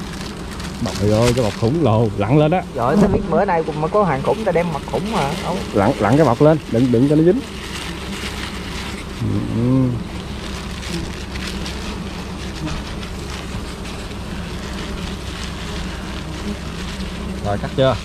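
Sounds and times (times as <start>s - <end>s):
bees buzzing: 0.0s - 18.0s
short voice sound: 9.2s - 10.0s.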